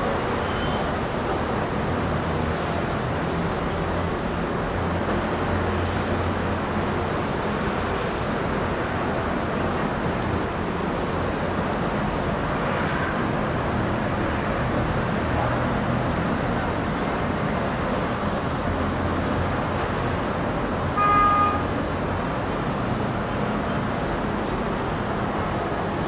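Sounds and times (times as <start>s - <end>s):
distant city traffic hum: 0.0s - 26.0s
car horn toot: 21.0s - 21.7s.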